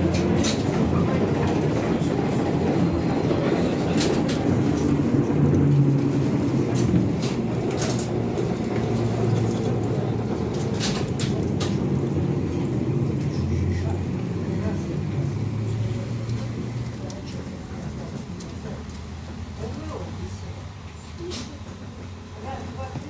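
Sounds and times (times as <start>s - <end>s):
bus interior hum: 0.0s - 23.0s.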